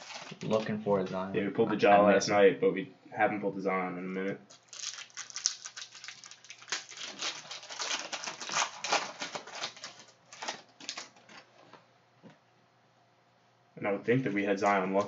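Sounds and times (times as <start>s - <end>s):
foil wrapper crinkling: 0.0s - 0.8s, 4.5s - 11.5s.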